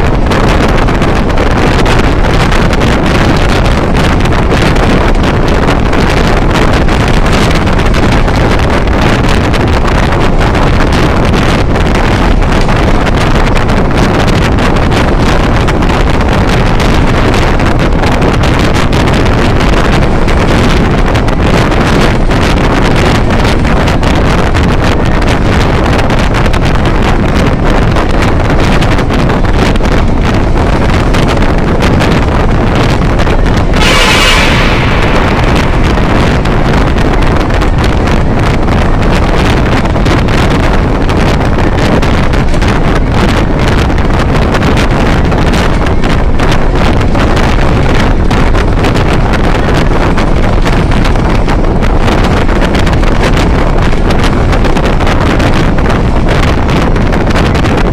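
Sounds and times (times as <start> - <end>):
car road noise in tunnel: 0.0 - 57.9
wind buffeting microphone: 0.0 - 57.9
brief rush of air: 33.5 - 38.2.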